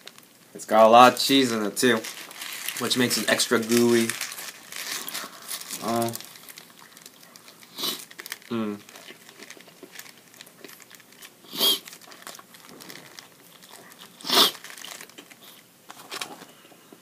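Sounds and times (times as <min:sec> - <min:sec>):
foil wrapper crinkling: 0:00.0 - 0:16.5
quiet chewing: 0:06.4 - 0:16.4.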